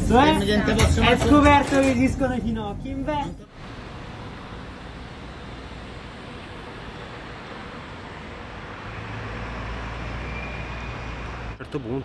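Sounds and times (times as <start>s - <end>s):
tram rumbling and hissing: 3.5s - 12.0s.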